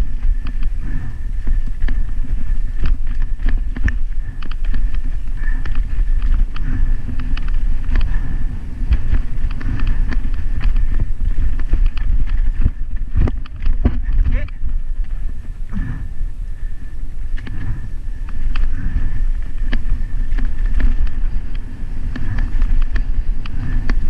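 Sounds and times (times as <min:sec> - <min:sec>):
wind rumble on microphone: 0:00.0 - 0:24.0
bike clattering over rocks: 0:01.4 - 0:15.2.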